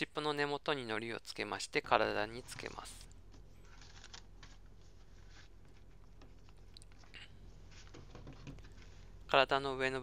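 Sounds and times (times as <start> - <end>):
paper rustling: 2.4 - 7.1.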